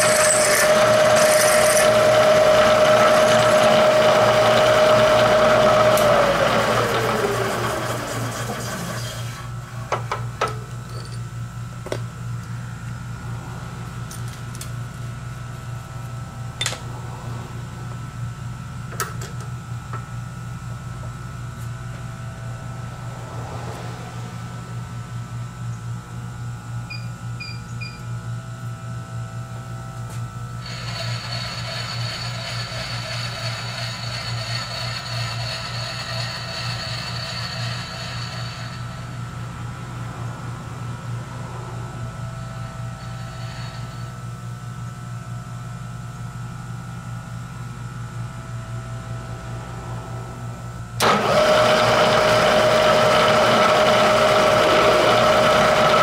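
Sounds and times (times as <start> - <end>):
drill cutting steel: 0.0 - 9.4, 30.6 - 39.2, 43.0 - 44.2, 51.0 - 56.0
high whirring: 0.0 - 9.6, 30.6 - 44.2
low motor hum: 0.0 - 56.0.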